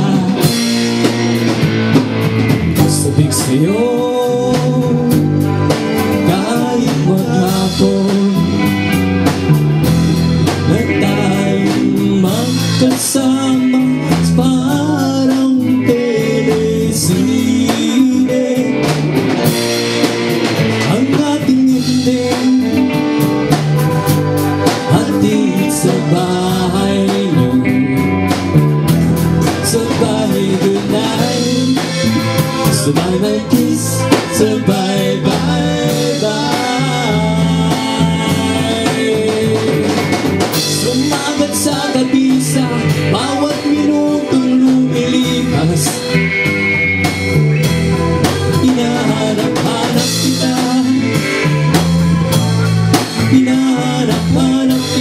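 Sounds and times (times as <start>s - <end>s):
man singing into a microphone: 0.0s - 1.1s, 2.8s - 9.0s, 10.5s - 19.6s, 20.5s - 23.3s, 24.6s - 28.1s, 29.4s - 46.3s, 48.2s - 52.1s, 52.9s - 55.0s
bass guitar: 0.0s - 55.0s
drum kit: 0.0s - 55.0s
electric guitar: 0.0s - 55.0s.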